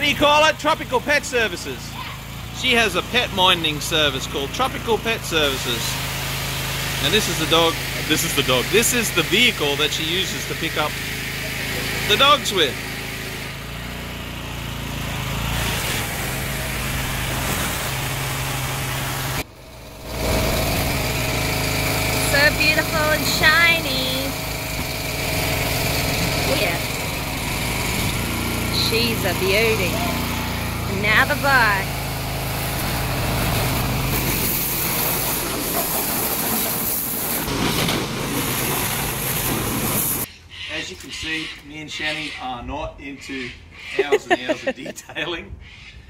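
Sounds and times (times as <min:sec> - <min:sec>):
pressure washer engine hum: 0:00.0 - 0:40.3
high-pressure water jet hissing: 0:02.6 - 0:13.1, 0:15.3 - 0:40.3
water jet hissing: 0:15.5 - 0:19.4, 0:31.9 - 0:40.3.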